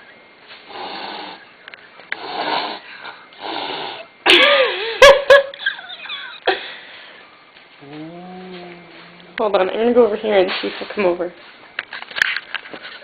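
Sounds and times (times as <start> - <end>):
cat hissing: 0.7 - 1.4, 2.2 - 2.8, 3.4 - 4.1
cat yowling growl: 7.8 - 9.4.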